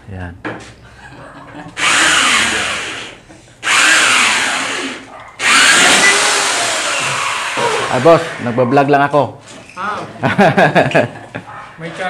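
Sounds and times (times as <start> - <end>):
power tool bursts: 1.8 - 8.6.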